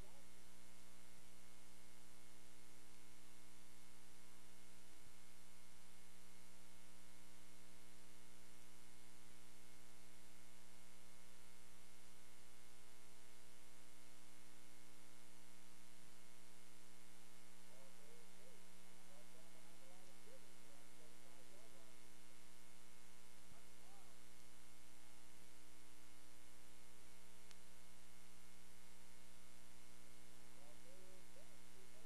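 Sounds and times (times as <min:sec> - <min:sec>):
electrical mains hum: 0:00.0 - 0:32.0
tape hiss: 0:00.0 - 0:32.0
faint ticks: 0:27.4 - 0:27.8.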